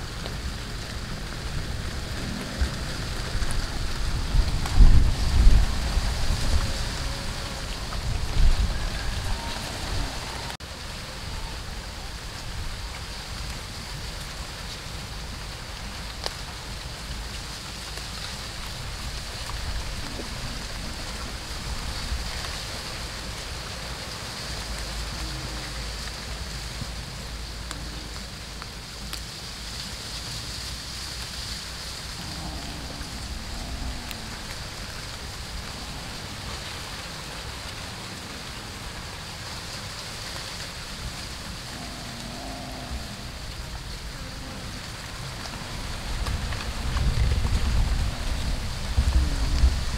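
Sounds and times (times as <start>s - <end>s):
constant high drone: 0.0s - 49.9s
even hiss: 0.0s - 49.9s
faint ticks: 24.3s - 49.8s
low rumble: 31.3s - 39.6s.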